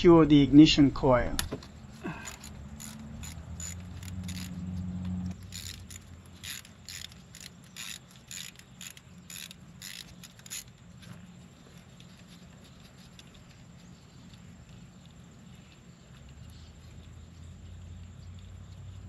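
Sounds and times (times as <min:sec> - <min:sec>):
ratchet tool clicking: 0:02.1 - 0:10.7.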